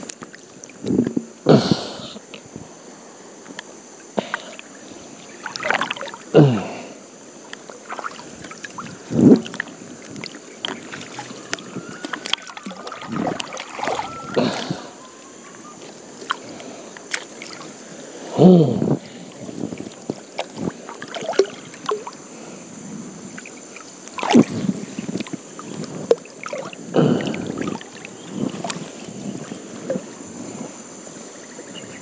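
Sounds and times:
paddle splashing in water: 0:05.2 - 0:06.3, 0:07.4 - 0:15.0, 0:15.7 - 0:18.0, 0:19.3 - 0:22.2, 0:23.3 - 0:30.1.

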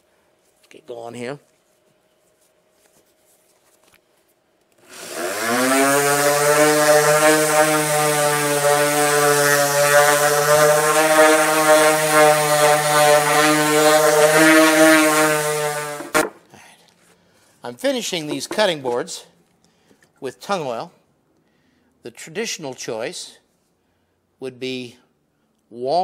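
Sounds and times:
orbital sander sanding wood: 0:04.8 - 0:16.4, 0:18.3 - 0:18.8.

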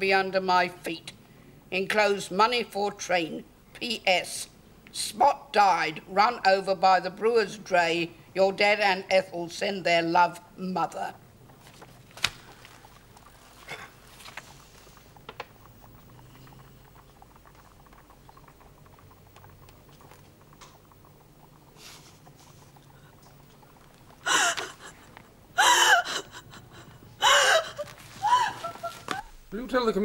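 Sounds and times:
woman sobbing: 0:24.2 - 0:29.3.

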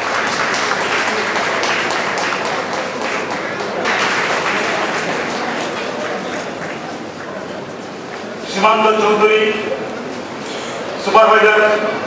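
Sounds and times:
audience clapping: 0:00.0 - 0:07.6.

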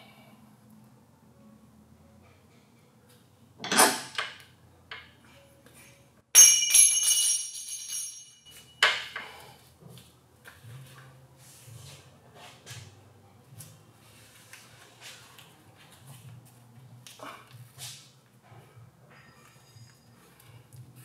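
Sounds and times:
ringing metallic clang: 0:05.8 - 0:09.2.

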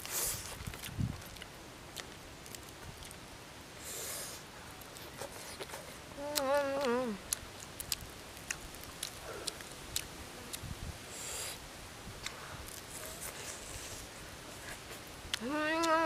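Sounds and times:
person humming: 0:06.2 - 0:07.3, 0:15.4 - 0:16.0.

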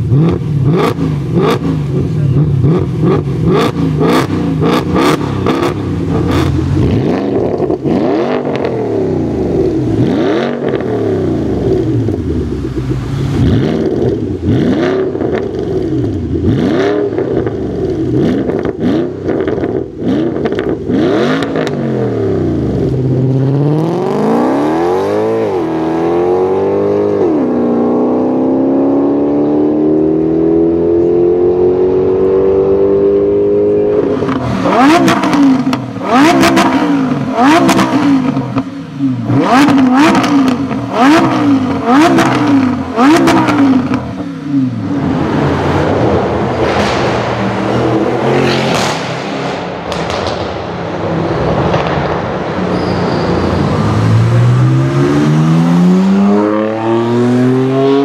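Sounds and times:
car accelerating with upshifts: 0:00.0 - 0:50.5, 0:53.3 - 0:58.0
car engine revving: 0:00.0 - 0:58.0
exhaust pops: 0:46.0 - 0:52.8.

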